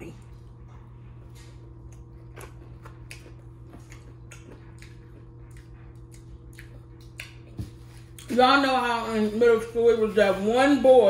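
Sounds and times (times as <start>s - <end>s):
steady low hum: 0.0s - 11.0s
person chewing food: 0.2s - 8.3s.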